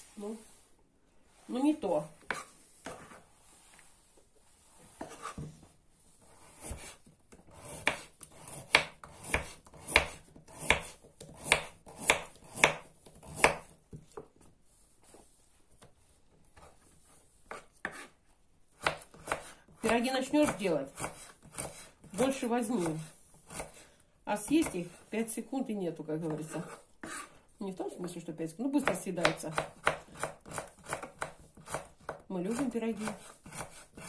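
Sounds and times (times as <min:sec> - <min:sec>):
knife cutting carrot on board: 0:02.2 - 0:03.2, 0:05.0 - 0:05.6, 0:06.2 - 0:14.2, 0:16.5 - 0:18.2, 0:18.8 - 0:23.8, 0:26.2 - 0:27.3, 0:28.8 - 0:34.0.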